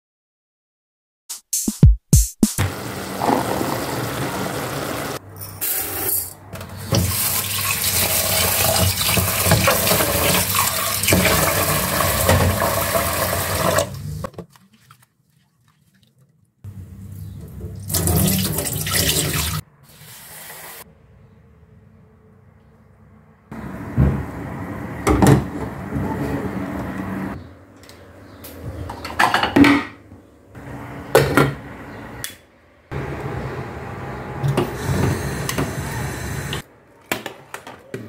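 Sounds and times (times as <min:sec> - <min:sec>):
tap water running into sink: 0:06.9 - 0:14.2, 0:17.8 - 0:19.6.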